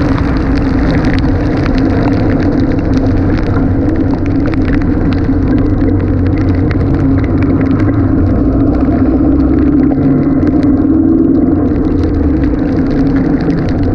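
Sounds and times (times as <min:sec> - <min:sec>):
car engine drone: 0:00.0 - 0:13.9
raindrops ticking: 0:00.0 - 0:13.9
road noise: 0:00.0 - 0:13.9
wind: 0:00.0 - 0:13.9.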